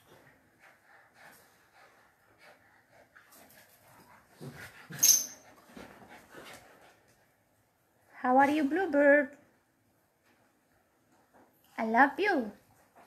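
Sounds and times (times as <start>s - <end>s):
dogs scuffling: 2.9s - 7.3s
high-pitched dog squeak: 4.9s - 5.4s.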